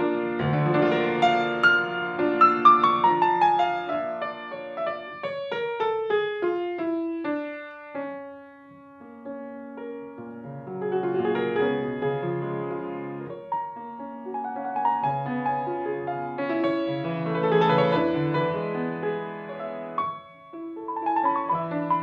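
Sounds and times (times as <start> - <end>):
grand piano playing: 0.0 - 22.0.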